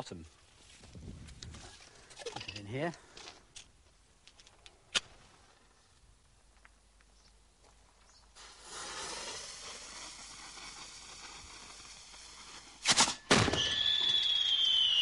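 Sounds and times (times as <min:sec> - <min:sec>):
fuse hissing: 0:08.3 - 0:12.8
firework mortar bangs: 0:08.4 - 0:15.0
descending firework whistle: 0:13.1 - 0:15.0.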